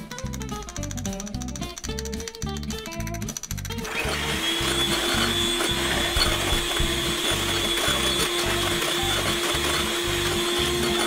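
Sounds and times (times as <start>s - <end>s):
beaters whipping in glass bowl: 0.0s - 11.0s
electric hand mixer whine: 3.8s - 11.0s.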